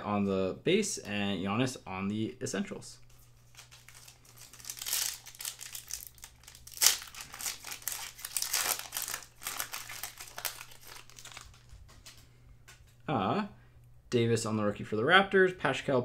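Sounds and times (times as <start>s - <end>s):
foil wrapper crinkling and tearing: 3.1s - 12.2s.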